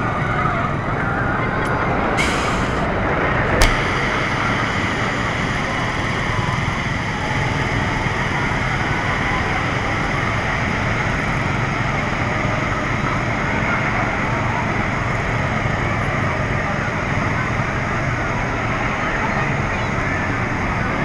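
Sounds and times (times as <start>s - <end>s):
spinning amusement ride: 0.0s - 21.0s
sharp click: 3.6s - 3.8s.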